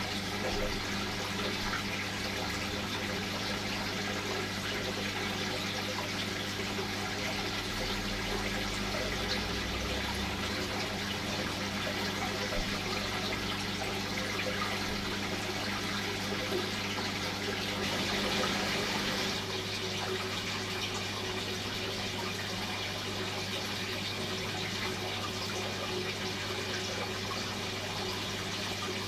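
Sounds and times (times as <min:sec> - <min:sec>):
water rushing: 0:06.1 - 0:29.0.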